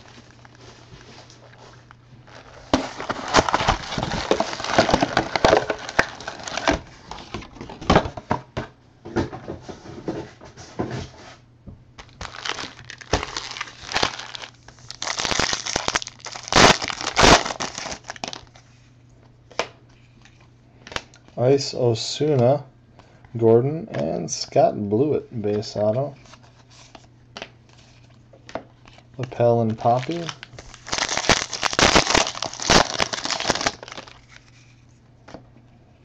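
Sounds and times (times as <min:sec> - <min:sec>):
foil wrappers tearing and crinkling: 0:02.3 - 0:07.4, 0:12.0 - 0:18.6, 0:29.8 - 0:34.6.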